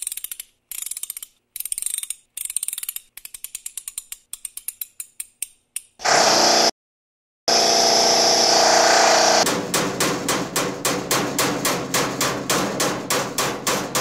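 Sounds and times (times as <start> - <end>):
power driver motor whine: 6.0 - 6.7, 7.5 - 9.4.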